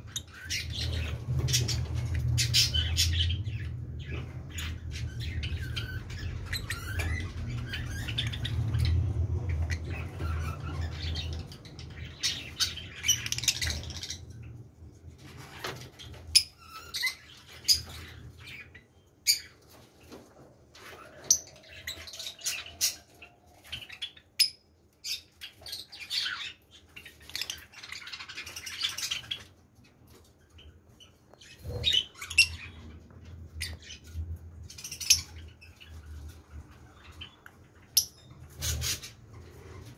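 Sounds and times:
lovebirds chirping: 0.0s - 39.9s.

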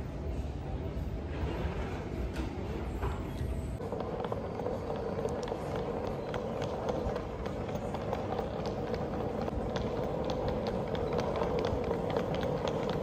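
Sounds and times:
footsteps on tiled floor: 3.8s - 13.0s.

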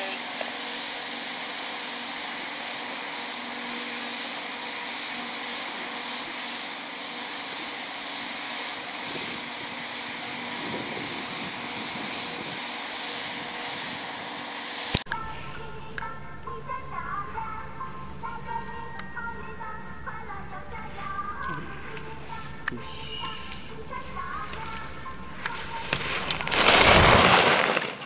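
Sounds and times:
outdoor hiss: 0.0s - 28.0s
faint hum: 14.9s - 27.4s.

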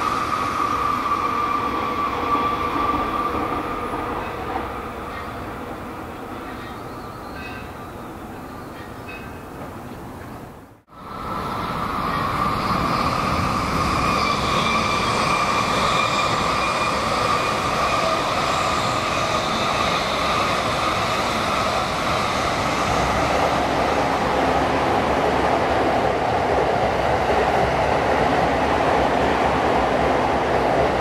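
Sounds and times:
bullet train rushing past: 0.0s - 31.0s.

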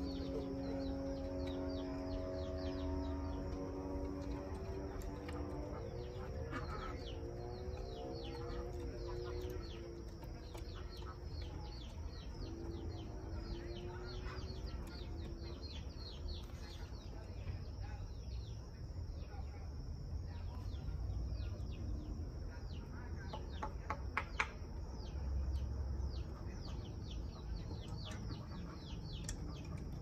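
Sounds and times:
low drawn-out bird calls: 0.0s - 18.7s
small birds chirping: 0.0s - 30.0s.

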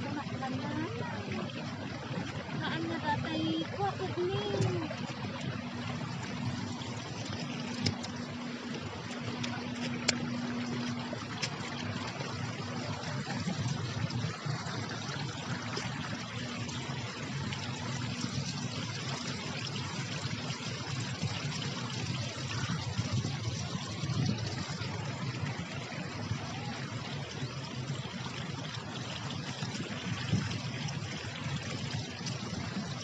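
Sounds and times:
water trickling down stone channel: 0.0s - 33.0s.

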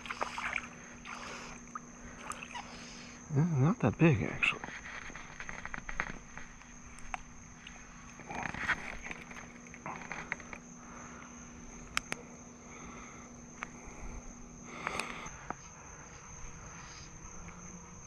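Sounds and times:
high-pitched insect drone: 0.0s - 18.0s
rustling: 4.6s - 10.7s.

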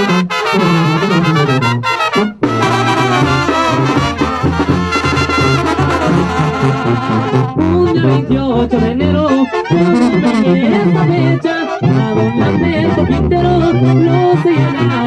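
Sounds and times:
drums: 0.0s - 7.9s
trumpets: 0.0s - 15.0s
tuba bass line: 0.0s - 15.0s.

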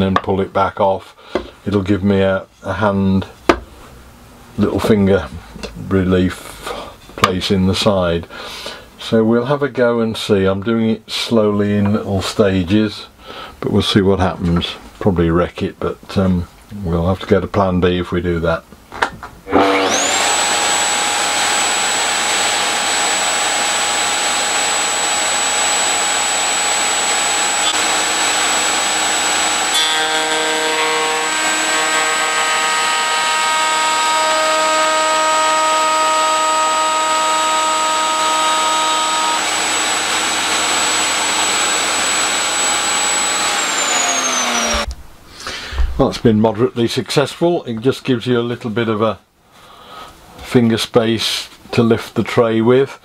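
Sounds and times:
router bit cutting wood: 19.5s - 44.9s
router whining: 19.5s - 44.9s.

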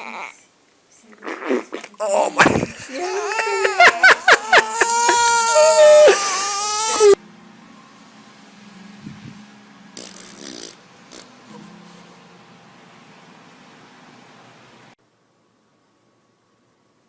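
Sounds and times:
newborn baby crying: 3.0s - 7.2s.

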